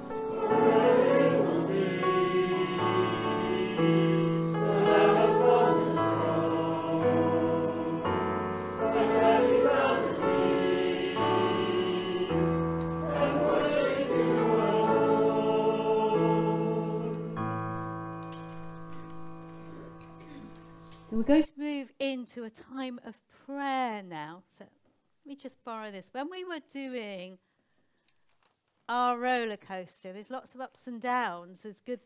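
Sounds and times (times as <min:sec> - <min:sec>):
voices singing a worship song: 0:00.0 - 0:17.6
held accompaniment chords: 0:00.0 - 0:21.2.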